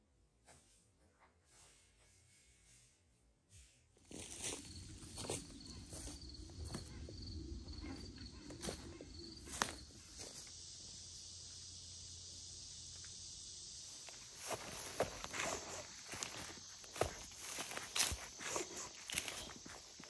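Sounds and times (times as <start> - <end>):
footsteps on a trail: 4.0 - 10.6, 13.9 - 20.0
insect chirping in high pulses: 4.4 - 20.0
steady high hiss: 8.6 - 20.0.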